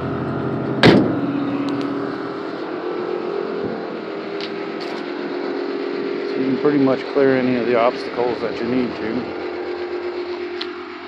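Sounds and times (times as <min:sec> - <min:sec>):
air compressors humming: 0:00.0 - 0:11.0
loud bang: 0:00.7 - 0:01.5.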